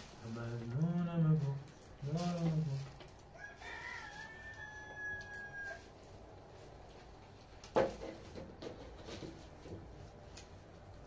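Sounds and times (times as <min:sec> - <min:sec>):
rooster crowing: 0:03.3 - 0:06.0.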